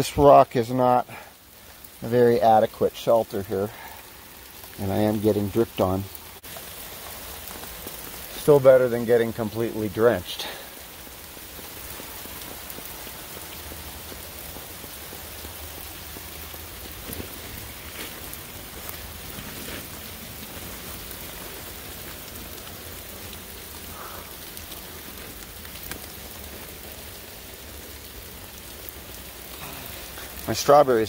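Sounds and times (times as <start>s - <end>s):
heavy rain falling: 0.0s - 31.0s
water drops landing nearby: 10.3s - 27.9s.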